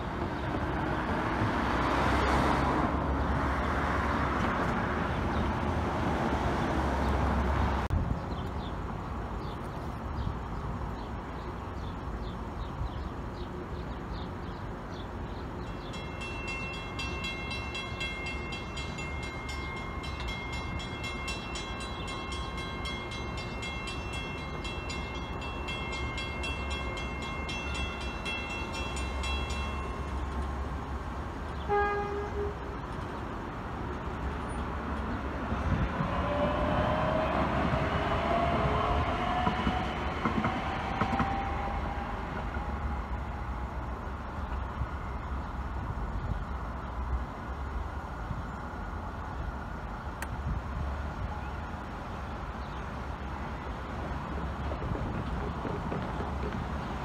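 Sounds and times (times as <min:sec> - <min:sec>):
railroad crossing bell ringing: 0:15.6 - 0:31.0.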